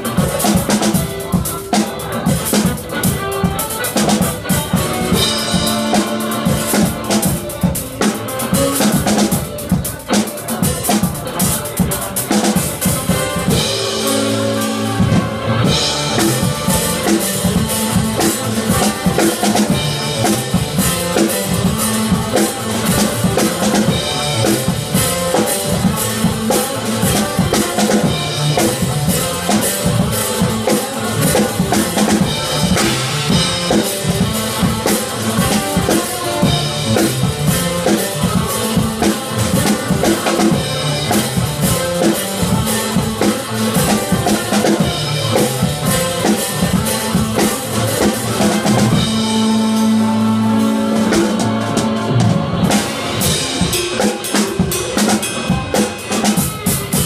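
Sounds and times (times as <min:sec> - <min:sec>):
cymbals: 0:00.0 - 0:57.0
pitched backing track: 0:00.0 - 0:57.0
bass drum: 0:10.6 - 0:53.9.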